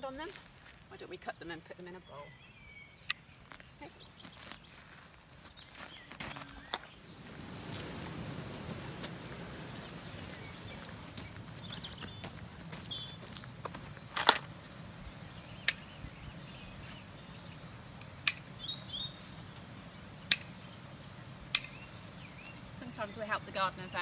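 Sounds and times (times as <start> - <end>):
birds chirping: 0.0 - 24.0
garden snips clicking: 3.0 - 3.4, 15.6 - 15.9, 18.0 - 18.5, 20.3 - 20.5, 21.5 - 21.8.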